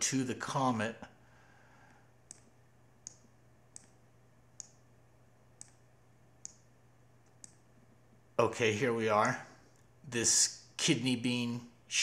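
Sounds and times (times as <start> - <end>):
faint low hum: 0.0 - 12.0
computer mouse clicks: 2.2 - 4.0, 4.6 - 4.8, 5.6 - 5.8, 6.4 - 7.6.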